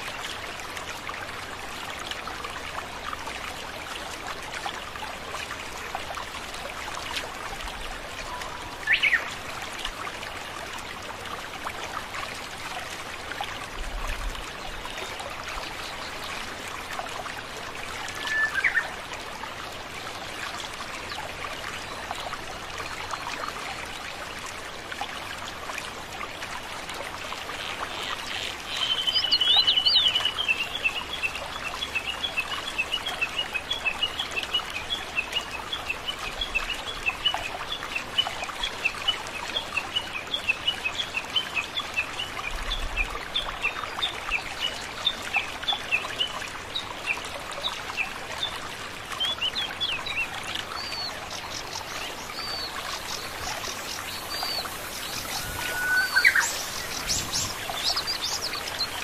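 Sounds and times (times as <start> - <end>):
waterfall splashing over rock: 49.4 - 59.0
bird chirping: 50.8 - 59.0
bird trilling: 54.0 - 57.6.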